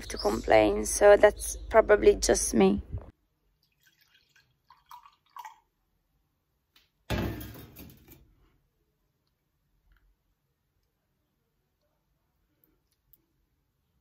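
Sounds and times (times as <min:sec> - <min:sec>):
coffee trickling into mug: 0:03.6 - 0:05.7.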